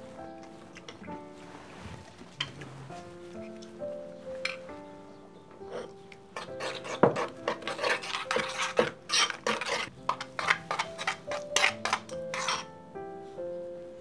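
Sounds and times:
metal spoon scraping ceramic bowl: 5.6s - 12.7s.

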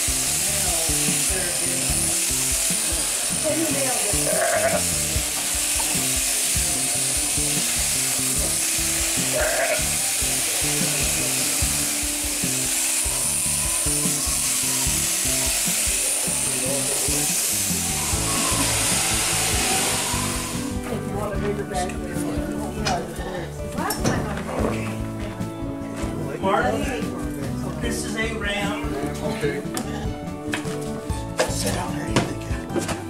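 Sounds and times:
electric shears buzzing: 0.0s - 22.0s
background music: 0.0s - 33.0s
sheep bleating: 4.1s - 5.0s, 9.2s - 9.9s.

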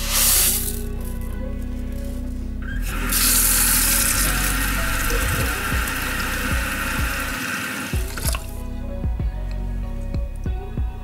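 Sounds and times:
tap water running into a bowl: 3.2s - 8.5s.

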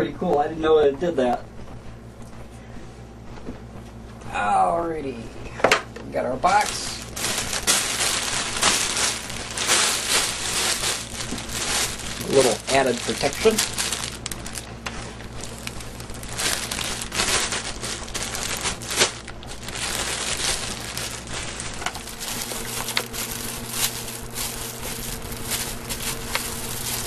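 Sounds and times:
cellophane crinkling: 6.4s - 27.0s.

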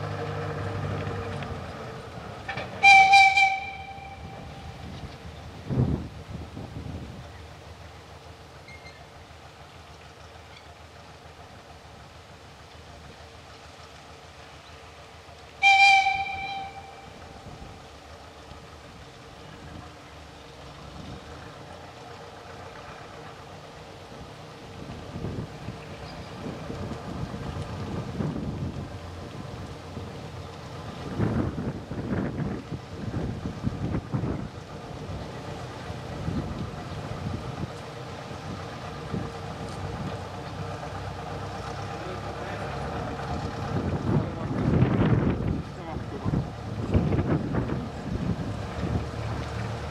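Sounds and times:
diesel locomotive engine idling: 0.0s - 49.9s
locomotive horn blast: 2.5s - 4.8s, 15.6s - 17.2s.

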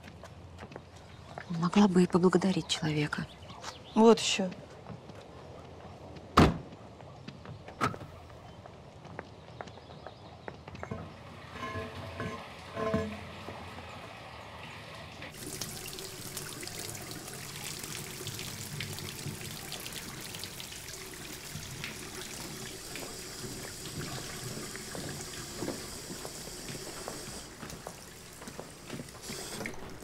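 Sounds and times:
water running and splashing: 11.2s - 30.0s.

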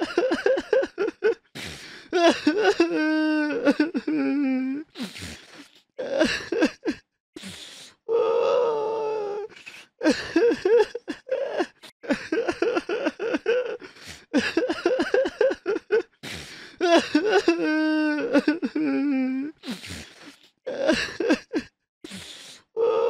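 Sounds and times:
person crying: 0.0s - 1.4s, 2.2s - 4.9s, 9.4s - 13.8s, 14.4s - 16.0s, 16.8s - 19.6s.

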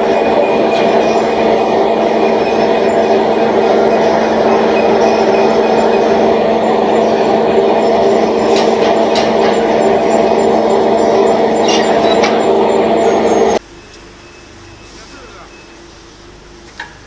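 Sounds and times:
machine humming: 0.0s - 13.6s
faint hum: 0.0s - 14.6s.

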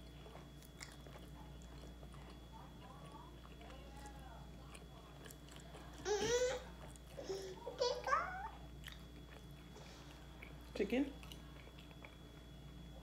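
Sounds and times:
toddler babbling: 7.2s - 8.6s.

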